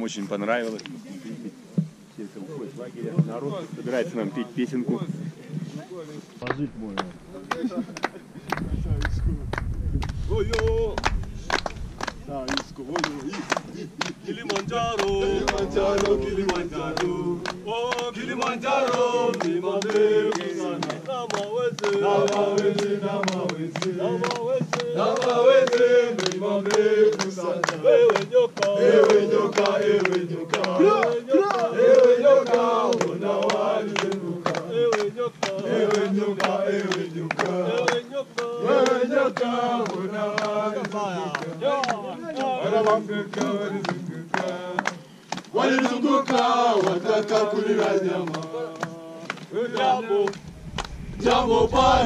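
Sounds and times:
hand claps keeping time: 6.4 - 9.1, 10.0 - 51.0
men singing in chorus: 10.4 - 52.0.

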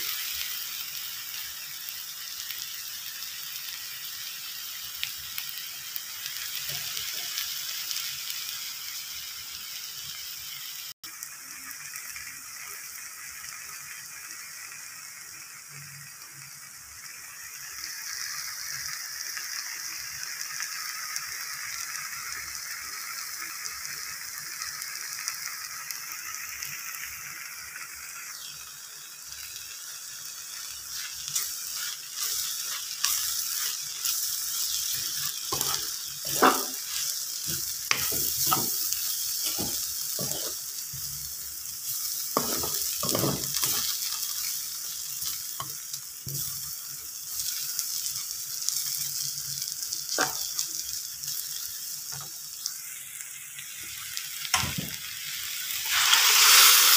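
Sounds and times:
vegetables sizzling in a frying pan: 0.0 - 56.9
spatula scraping a pan: 30.8 - 41.1, 41.8 - 44.5.

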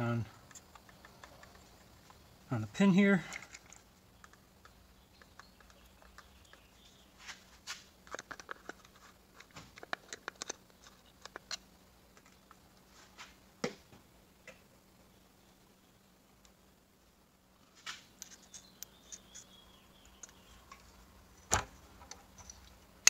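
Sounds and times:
small parts clicking and tapping: 0.3 - 2.2, 3.2 - 6.9, 8.0 - 12.7, 18.2 - 22.8.

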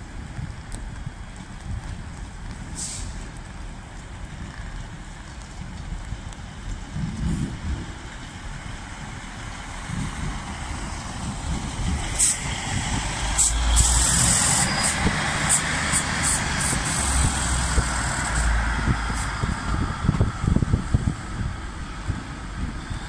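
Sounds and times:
diesel train engines rumbling: 0.0 - 23.0
wheels squeaking on track: 13.3 - 20.5.

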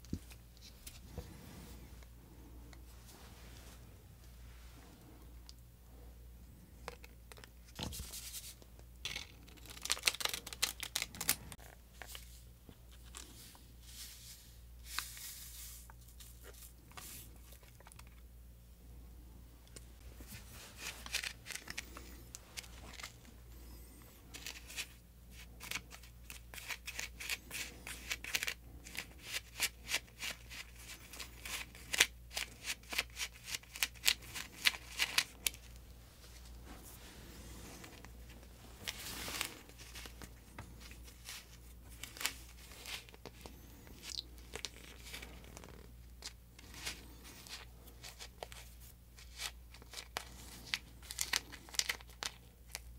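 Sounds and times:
paper packets crinkling and tearing: 9.1 - 12.2, 20.3 - 35.8, 37.8 - 52.9.

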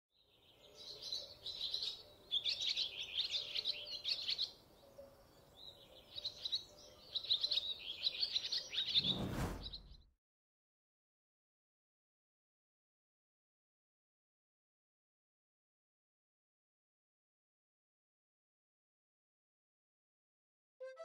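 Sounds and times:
small birds chirping: 0.2 - 10.1
rushing noise: 8.9 - 10.0.

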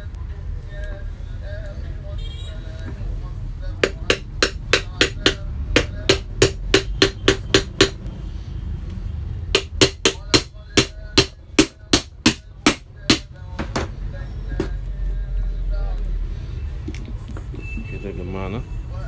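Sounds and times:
small hammer tapping on metal: 3.8 - 8.0, 9.6 - 13.3.

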